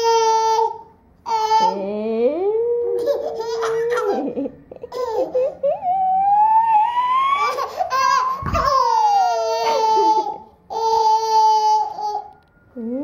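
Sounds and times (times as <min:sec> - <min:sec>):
baby squealing and babbling: 0:03.0 - 0:04.2
baby laughing: 0:03.0 - 0:06.0, 0:07.3 - 0:12.3.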